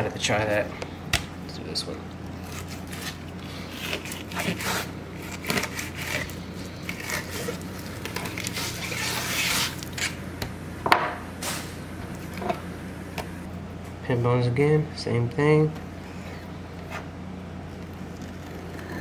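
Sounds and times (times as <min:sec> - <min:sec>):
knife scraping cutting board: 0:02.4 - 0:10.2.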